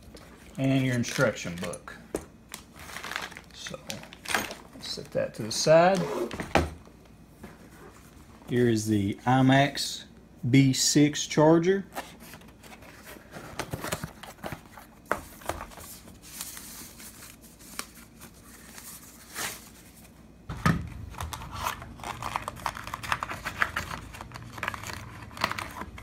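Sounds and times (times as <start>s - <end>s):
cardboard packaging rustling: 0.6s - 6.6s, 11.9s - 20.2s, 20.9s - 26.0s
plastic wrapping crinkling: 2.5s - 5.0s.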